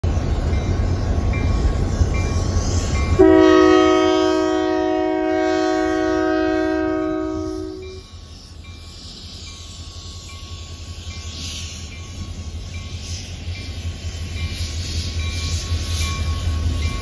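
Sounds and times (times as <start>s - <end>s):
diesel locomotives rumbling: 0.0s - 17.0s
locomotive air horn blast: 3.2s - 8.0s.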